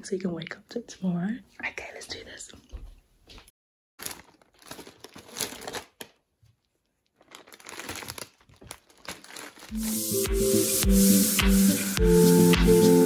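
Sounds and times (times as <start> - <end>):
foil wrapping paper crinkling: 4.0 - 10.1
background music with beat: 9.7 - 13.0.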